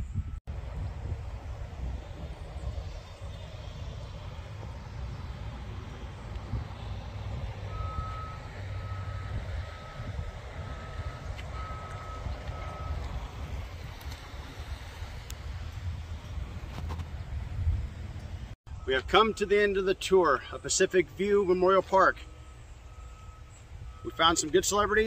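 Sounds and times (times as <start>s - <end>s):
reversing alarm beeping: 0.0s - 0.4s, 6.5s - 13.2s, 18.7s - 25.0s
wind rumble on microphone: 0.0s - 18.8s.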